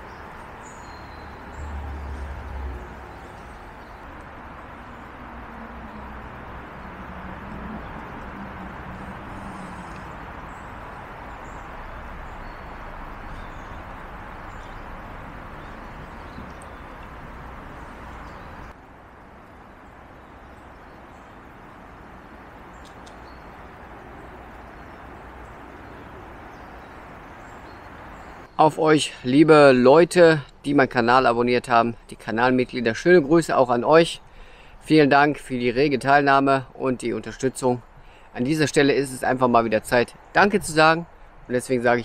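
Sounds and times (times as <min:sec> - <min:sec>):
faint bird chirps: 0:00.0 - 0:04.2, 0:09.3 - 0:18.7
stream rushing: 0:00.0 - 0:29.3.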